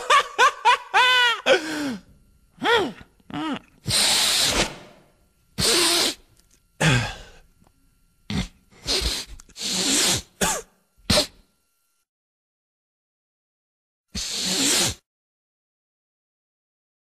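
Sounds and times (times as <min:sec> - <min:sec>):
cartoon voice sneezing and snorting: 0:02.6 - 0:04.7, 0:05.6 - 0:06.2, 0:08.3 - 0:11.4, 0:14.2 - 0:15.1.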